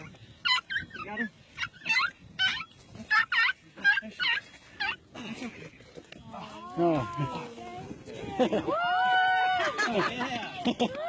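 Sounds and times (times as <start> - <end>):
dog whining and yelping: 0.0 - 5.0.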